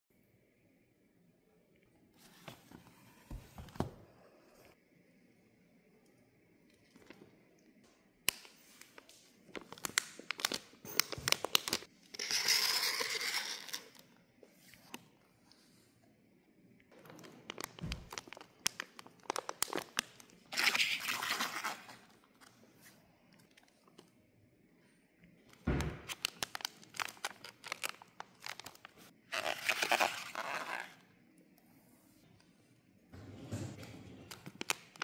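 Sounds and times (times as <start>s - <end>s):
plastic pouches crinkling: 8.4s - 14.0s, 17.0s - 22.5s, 26.0s - 31.0s, 34.3s - 35.0s.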